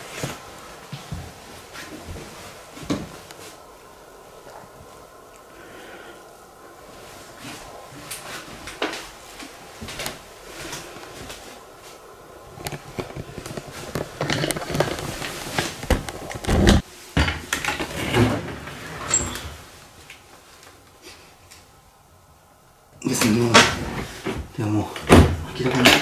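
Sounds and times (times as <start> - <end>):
footsteps on kitchen floor: 0.0 - 3.8, 7.0 - 17.4.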